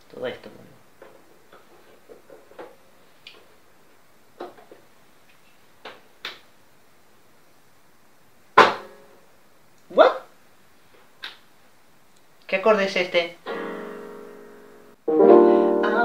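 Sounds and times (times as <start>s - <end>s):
loud sharp knock: 8.6s - 9.0s.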